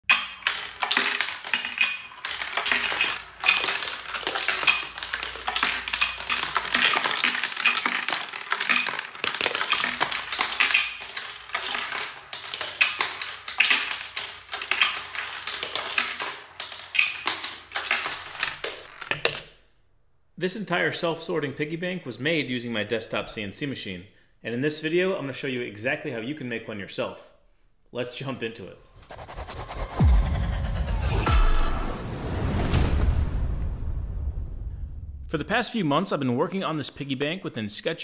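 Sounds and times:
coins clattering down wooden ramp: 0.1 - 19.5
music: 29.9 - 33.1.

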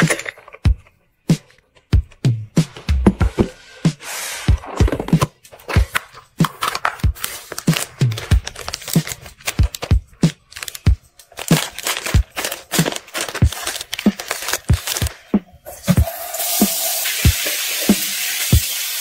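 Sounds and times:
background music with steady beat: 0.0 - 19.0
plastic wrap crinkling: 5.7 - 15.3.

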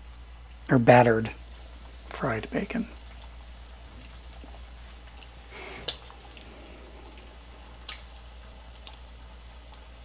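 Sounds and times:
bacon sizzling in oil: 0.0 - 10.0
oil popping: 3.0 - 10.0.

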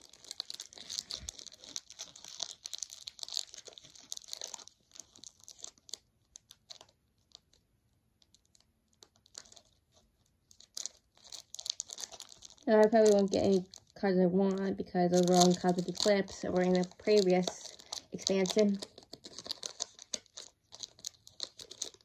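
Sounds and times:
foil wrapper tearing and crinkling: 0.0 - 7.6, 8.2 - 22.0.

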